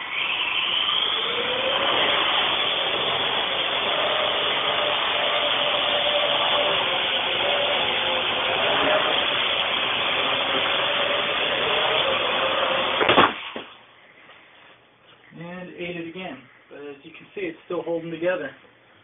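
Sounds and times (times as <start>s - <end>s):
quadcopter propellers buzzing: 0.0s - 13.0s
sharp knock: 13.0s - 13.7s.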